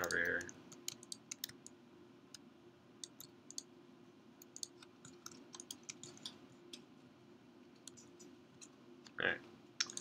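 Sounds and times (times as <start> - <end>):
low steady hum: 0.0 - 10.0
mouse and keyboard clicks: 4.4 - 6.9, 7.8 - 8.8, 9.8 - 10.0.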